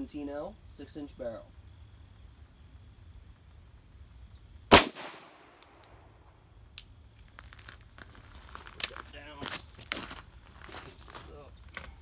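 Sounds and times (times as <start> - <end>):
pistol gunshot with echo: 4.7 - 5.6.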